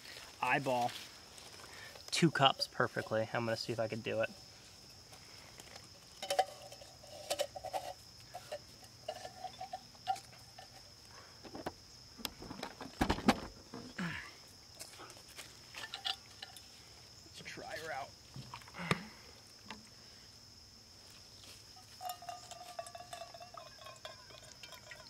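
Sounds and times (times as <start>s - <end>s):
metal cook pot clinking: 6.2s - 10.8s, 22.0s - 25.0s.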